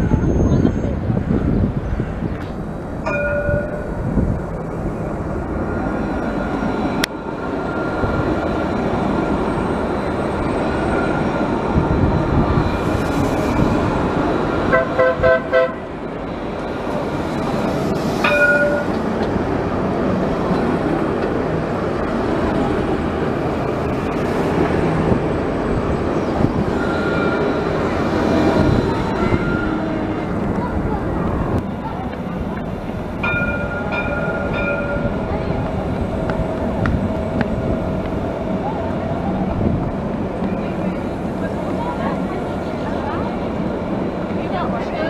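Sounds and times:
tram wheels on rails: 0.0 - 45.0.

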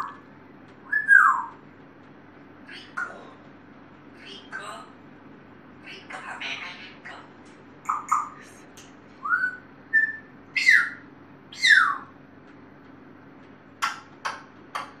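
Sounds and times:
parrot chirps: 0.8 - 1.6, 7.8 - 8.5, 9.2 - 12.2
parrot whistling: 0.8 - 1.6, 9.2 - 12.1.

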